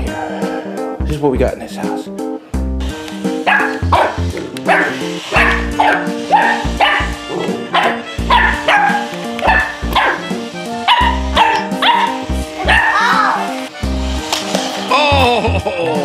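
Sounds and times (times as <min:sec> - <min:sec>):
puppy yapping: 0:03.5 - 0:10.2, 0:10.8 - 0:13.4.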